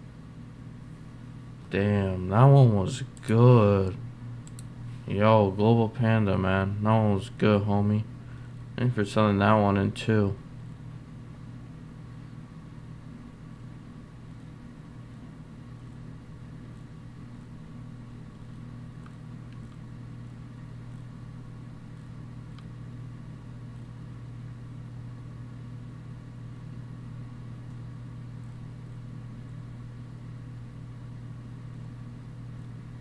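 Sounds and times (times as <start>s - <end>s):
faint clicks: 4.4s - 4.7s.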